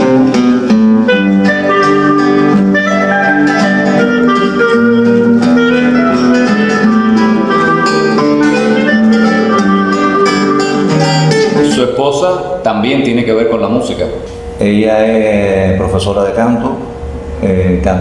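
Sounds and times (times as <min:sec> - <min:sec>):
clarinet melody: 0:00.0 - 0:11.9
classical guitar: 0:00.0 - 0:12.6.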